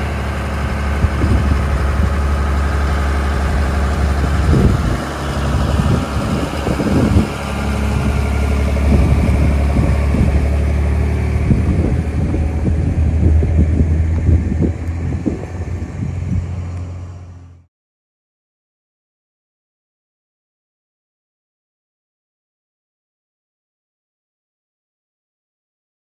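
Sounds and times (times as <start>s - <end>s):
pickup truck engine drone: 0.0s - 17.7s.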